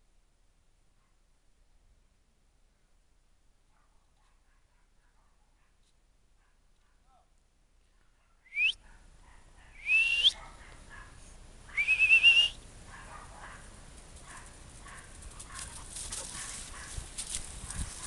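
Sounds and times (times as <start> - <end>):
person whistling: 8.5 - 8.8, 9.8 - 10.4, 11.8 - 12.6
faint rustling: 13.4 - 18.0.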